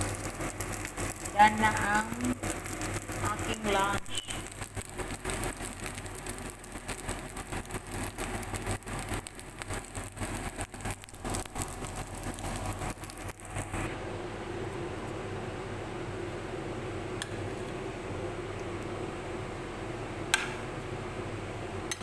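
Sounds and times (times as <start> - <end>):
fried rice sizzling in a pan: 0.0 - 13.9.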